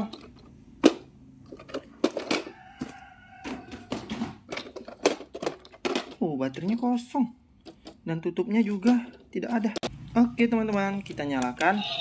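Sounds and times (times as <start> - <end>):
plastic toy clicks and knocks: 0.0 - 2.9, 3.9 - 7.0.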